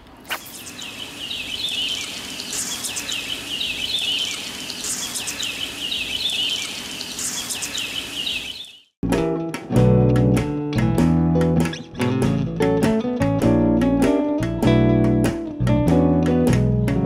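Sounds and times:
steady hiss: 0.2s - 8.3s
high chirping calls: 0.3s - 9.0s.

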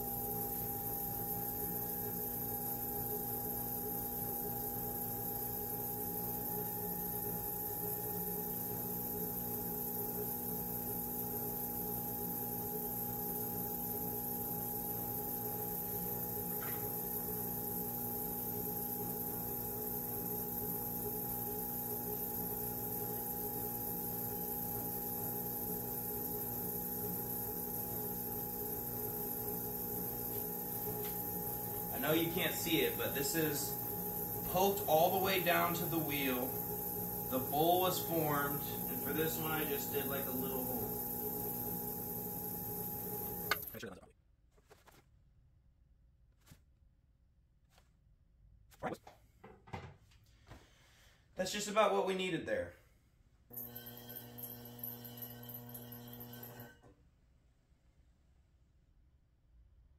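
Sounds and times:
potter's wheel motor hum: 0.0s - 44.0s, 53.5s - 56.8s.

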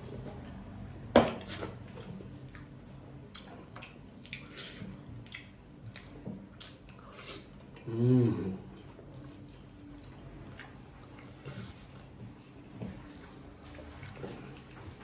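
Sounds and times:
person chewing noodles: 1.4s - 15.0s
wet mouth clicks and smacks: 3.3s - 7.0s.

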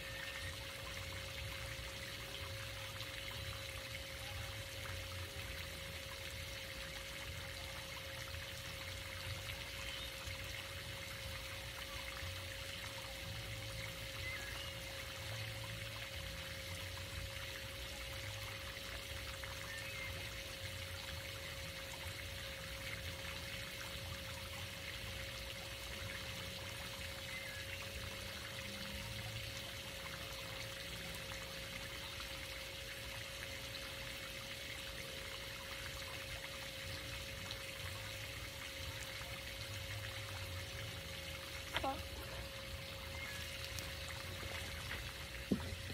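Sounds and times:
faint steady hum: 0.0s - 45.9s
fountain water splashing: 0.0s - 45.9s.

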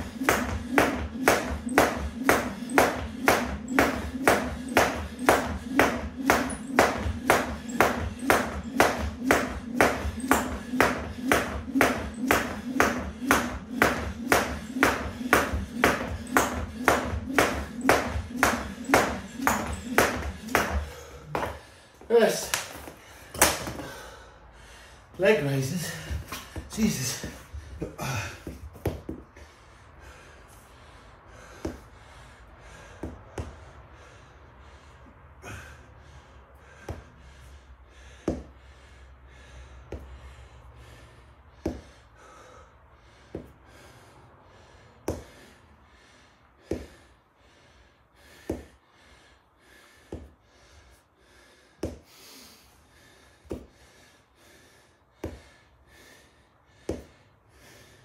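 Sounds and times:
man exhaling forcefully: 22.8s - 25.1s, 26.0s - 28.7s, 35.3s - 47.2s.

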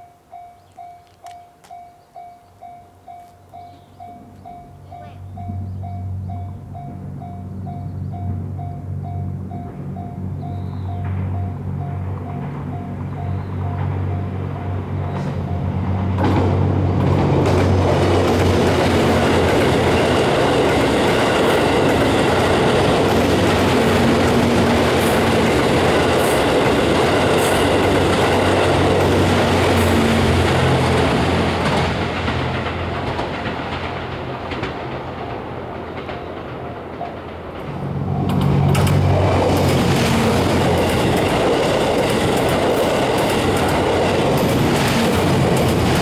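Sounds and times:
level-crossing bell dinging: 0.0s - 15.9s
train engine hum: 0.0s - 46.0s
train wheels rushing on rail: 3.3s - 46.0s.

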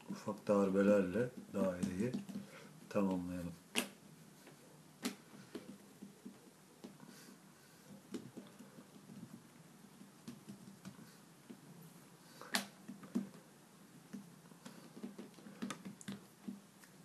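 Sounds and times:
fingers tapping play dough: 1.3s - 4.0s, 5.0s - 7.0s, 8.1s - 11.6s, 14.1s - 16.7s.

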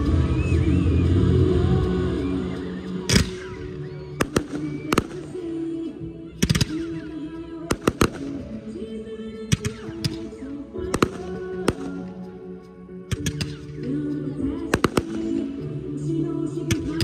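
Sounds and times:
music playing: 0.0s - 17.0s
fireworks bangs: 3.1s - 8.7s, 9.5s - 12.2s, 14.7s - 15.6s.

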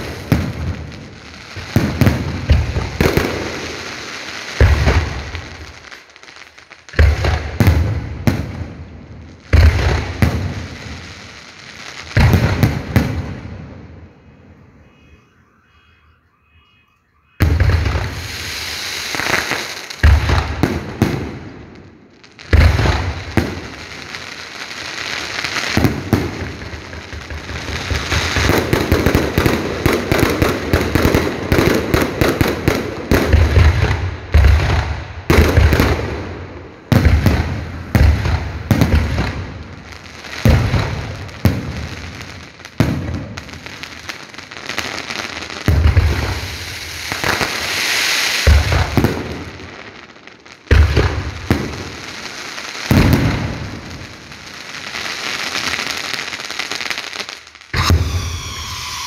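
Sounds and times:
fireworks crackling: 0.0s - 59.0s
firework shells booming: 12.1s - 14.2s, 17.4s - 23.8s, 25.8s - 39.8s, 45.7s - 47.8s, 48.4s - 49.7s, 50.7s - 52.2s, 52.9s - 54.4s, 57.7s - 59.0s.

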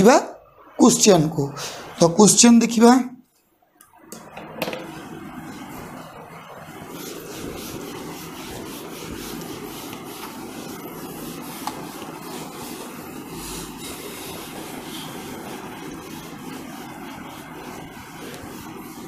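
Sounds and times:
background noise: 0.0s - 4.6s
cloth wiping a whiteboard: 4.9s - 19.0s.

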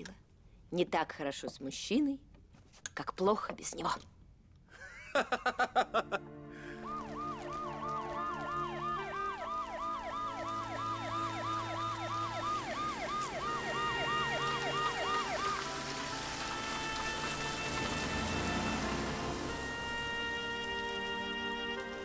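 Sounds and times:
ambulance siren wailing: 6.6s - 22.0s.

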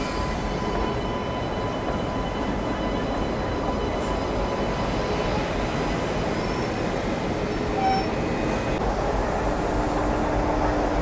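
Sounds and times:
electric locomotive rumbling: 0.0s - 11.0s.

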